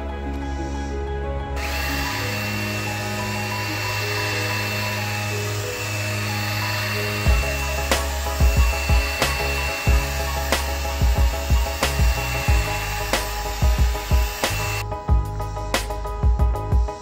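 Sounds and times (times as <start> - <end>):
background music: 0.0 - 17.0
cordless drill polishing whine: 1.6 - 14.8.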